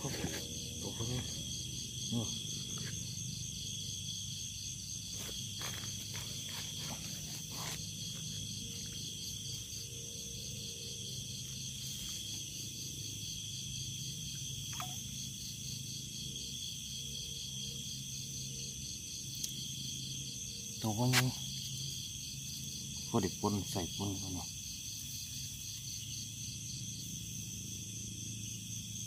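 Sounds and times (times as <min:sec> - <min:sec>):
crickets and insects trilling: 0:00.0 - 0:29.0.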